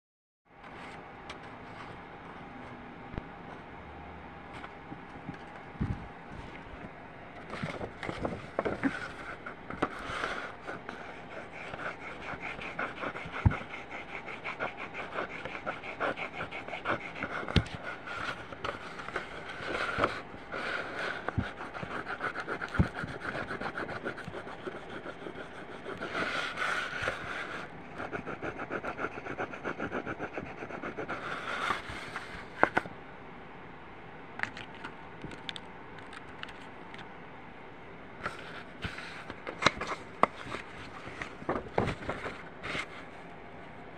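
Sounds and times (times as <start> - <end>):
oil pastel scratching on paper: 7.6 - 32.7.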